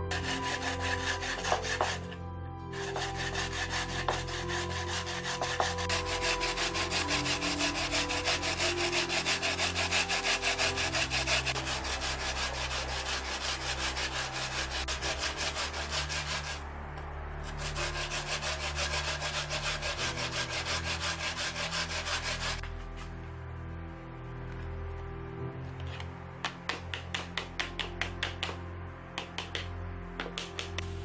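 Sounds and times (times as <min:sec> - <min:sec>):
potato grated on grater: 0:00.1 - 0:02.1, 0:02.8 - 0:16.6.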